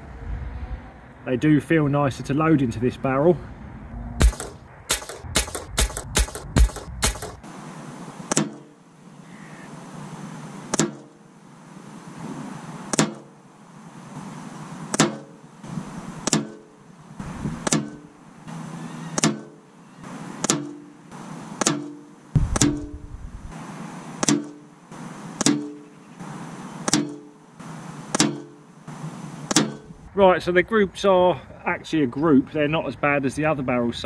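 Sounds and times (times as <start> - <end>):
air rifle shots ringing: 4.2 - 7.5, 8.3 - 8.8, 10.7 - 11.2, 12.9 - 13.3, 14.9 - 15.4, 16.2 - 16.7, 17.6 - 18.1, 20.4 - 20.9, 21.6 - 23.2, 24.2 - 24.6, 25.4 - 25.9, 26.8 - 27.4, 28.1 - 28.6, 29.4 - 30.0.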